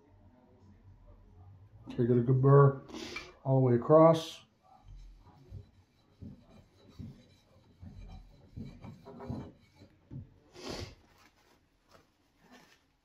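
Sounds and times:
metal rubbing on sharpening plate: 4.8 - 10.0.

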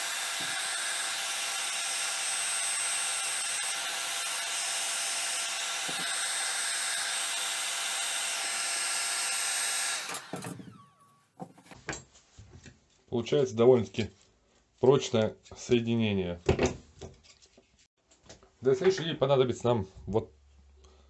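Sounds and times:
heat gun blowing with high whine: 0.0 - 11.2.

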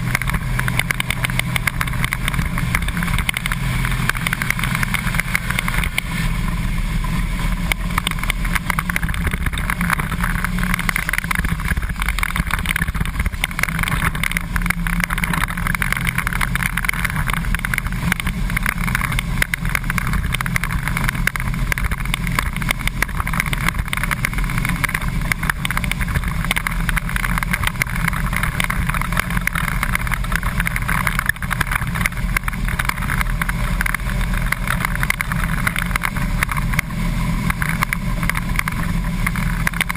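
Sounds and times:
bus engine and road noise: 0.0 - 39.9.

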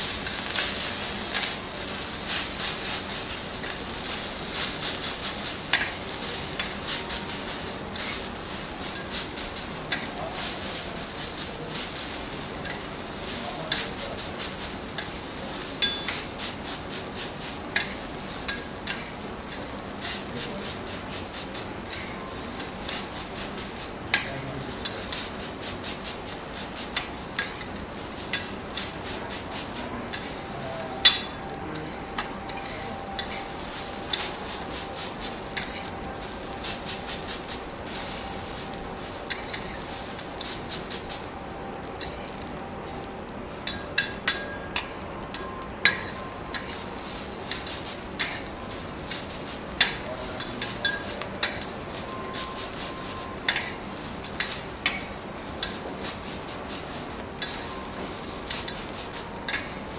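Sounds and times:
spatulas scraping griddle: 0.0 - 59.9
steady sizzle: 0.0 - 59.9
metal spatulas clicking on griddle: 5.7 - 6.8, 9.9 - 10.2, 15.8 - 16.3, 17.7 - 20.3, 24.1 - 25.3, 26.9 - 28.9, 43.6 - 46.8, 47.5 - 48.5, 49.1 - 51.7, 53.5 - 55.8, 57.4 - 57.6, 59.5 - 59.8.

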